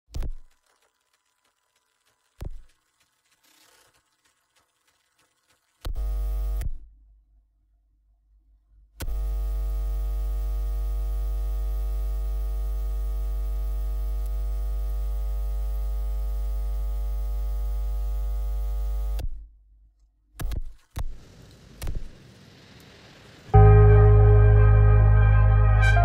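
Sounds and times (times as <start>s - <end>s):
electrical mains hum: 9.1s - 19.2s.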